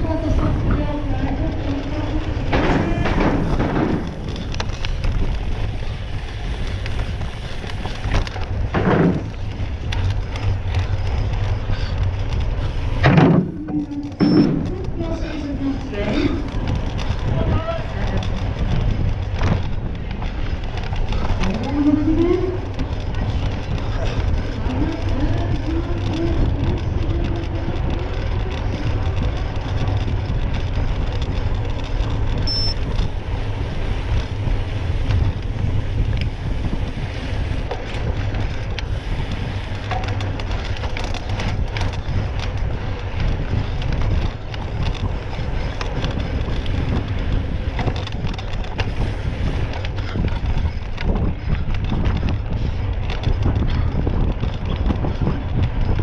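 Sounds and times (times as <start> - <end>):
wind buffeting microphone: 0.0 - 56.0
light knocks and rattles: 0.2 - 15.0.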